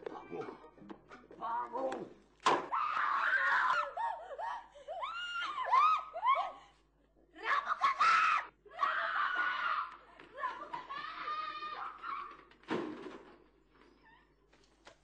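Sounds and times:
people screaming: 0:02.7 - 0:06.6, 0:07.4 - 0:12.6.

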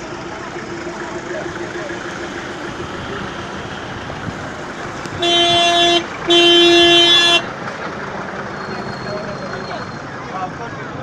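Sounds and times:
street traffic noise: 0:00.0 - 0:11.0
vehicle horn honking: 0:05.1 - 0:07.5.

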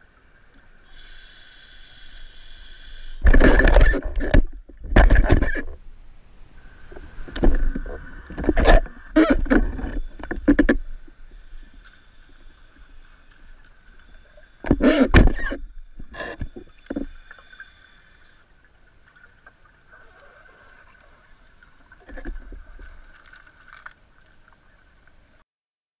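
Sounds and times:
faint hiss: 0:00.0 - 0:03.4, 0:05.9 - 0:09.2, 0:09.9 - 0:14.7, 0:15.6 - 0:25.4.

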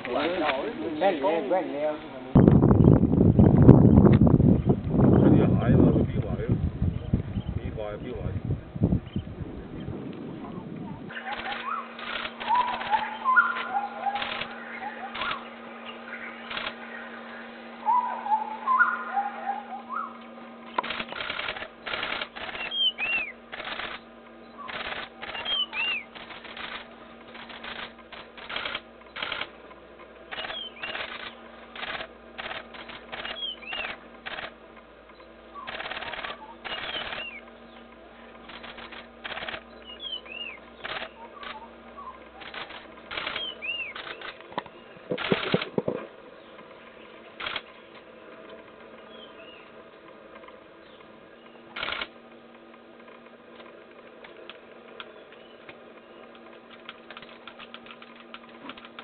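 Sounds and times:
bird short high call: 0:11.1 - 0:20.2
camera shutters clicking: 0:11.2 - 0:14.5, 0:15.1 - 0:15.4, 0:16.5 - 0:16.8, 0:20.7 - 0:24.0, 0:24.7 - 0:29.5, 0:30.3 - 0:34.6, 0:35.7 - 0:37.4, 0:38.5 - 0:39.6, 0:40.8 - 0:41.6, 0:42.4 - 0:46.0, 0:47.4 - 0:47.7, 0:51.8 - 0:52.1.

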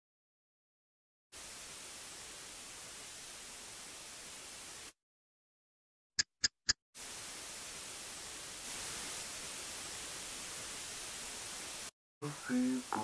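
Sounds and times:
static hiss: 0:01.4 - 0:05.0, 0:07.0 - 0:13.0.

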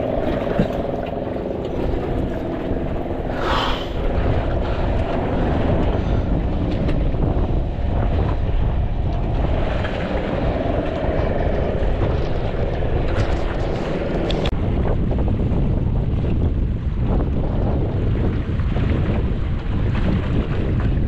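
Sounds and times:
sea washing: 0:00.0 - 0:14.6
wind rumble on microphone: 0:00.0 - 0:21.0.

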